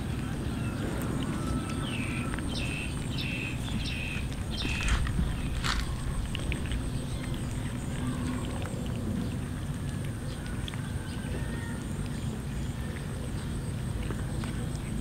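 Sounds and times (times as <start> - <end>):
cats chewing and licking: 0.0 - 15.0
steady low rumble: 0.0 - 15.0.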